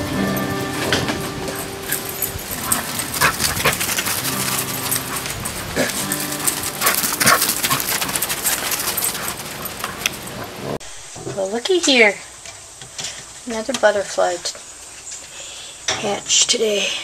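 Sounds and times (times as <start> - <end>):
background music: 0.0 - 9.7
dogs yipping and barking: 0.0 - 10.8.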